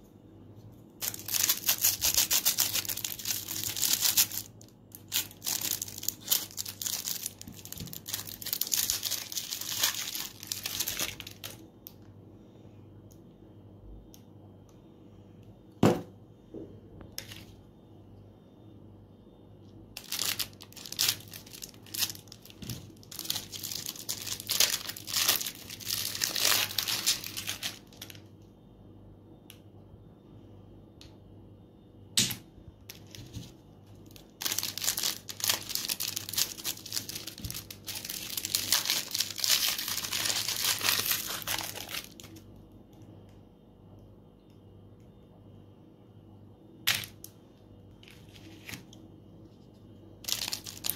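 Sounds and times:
cellophane wrappers crinkling: 1.0 - 11.6, 20.0 - 28.3, 32.9 - 42.4, 50.2 - 50.9.

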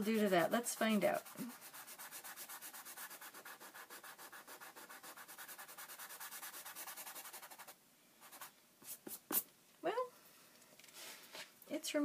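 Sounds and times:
sandpaper rubbing on paper: 0.0 - 9.4.

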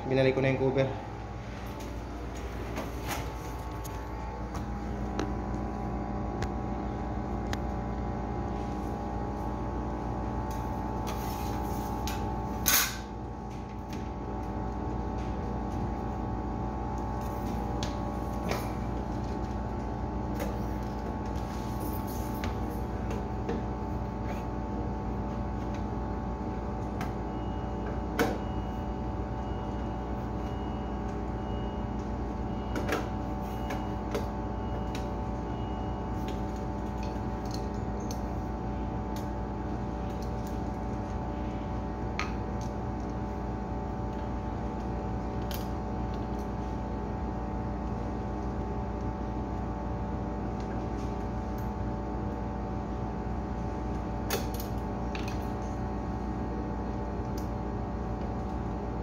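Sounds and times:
refrigerator machinery humming: 0.0 - 59.0.

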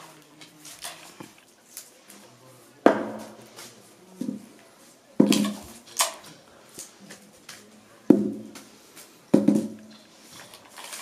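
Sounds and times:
cardboard tube knocks and scrapes: 9.4 - 9.9.

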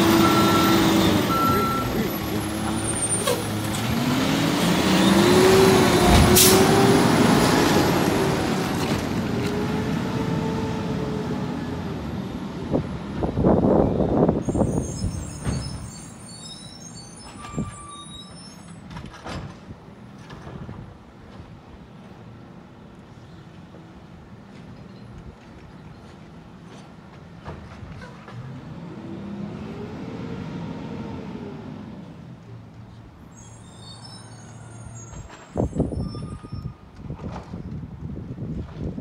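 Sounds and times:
truck engine accelerating: 0.0 - 14.4, 28.4 - 32.3.

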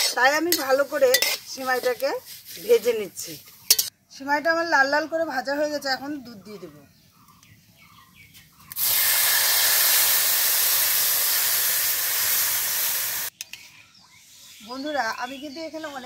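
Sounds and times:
milk sizzling in hot fat: 0.0 - 3.9, 8.7 - 13.3.

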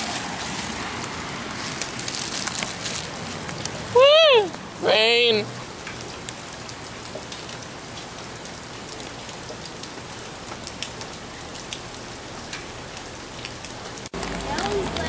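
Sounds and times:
steady rain falling: 0.0 - 15.0.

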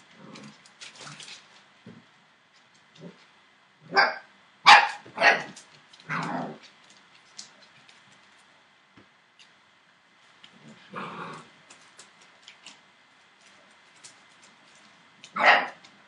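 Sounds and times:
puppies barking: 3.9 - 6.6, 15.3 - 15.8.

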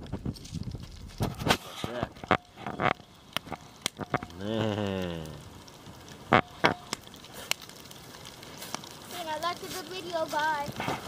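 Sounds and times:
butter sizzling: 0.0 - 11.0
campfire crackling pops: 0.0 - 11.0
man's drawn-out voice: 4.3 - 5.4.

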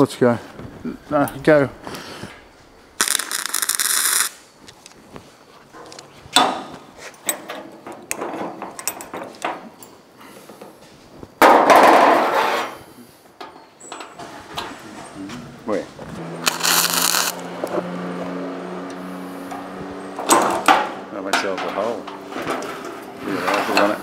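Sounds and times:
harsh hissing bursts: 16.4 - 17.4.

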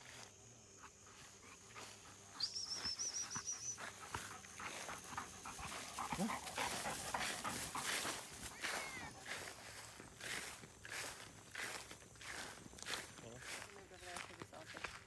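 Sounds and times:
dog panting rapidly: 3.3 - 9.6.

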